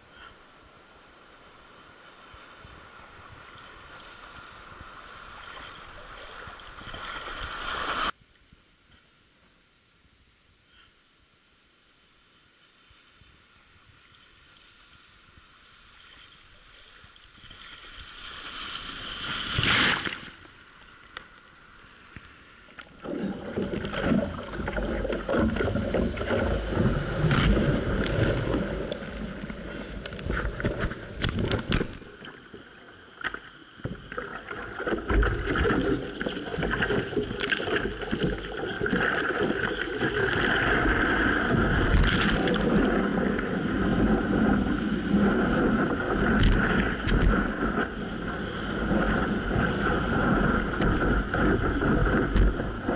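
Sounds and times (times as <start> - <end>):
seawater splashing and churning: 1.9 - 8.2, 22.8 - 52.9
rush of whitewater: 33.9 - 52.9.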